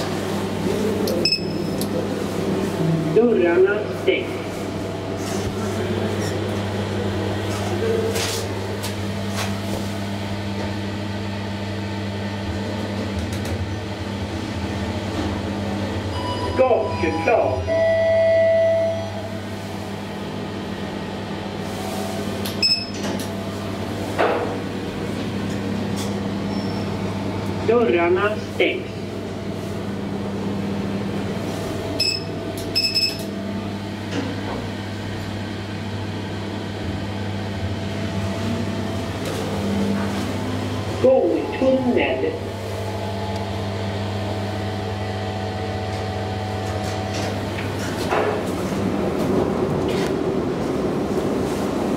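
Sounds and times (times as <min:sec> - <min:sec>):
elevator hum with airy rush: 0:00.0 - 0:51.9
short electronic beeps: 0:01.2 - 0:01.7, 0:22.6 - 0:23.0, 0:32.0 - 0:33.2.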